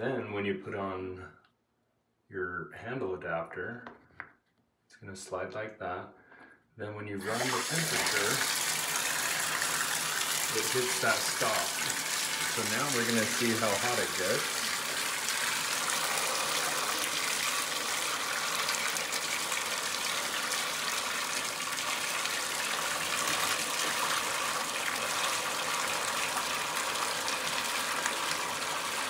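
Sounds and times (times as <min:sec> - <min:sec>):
water running into a bathtub: 0:07.2 - 0:29.0.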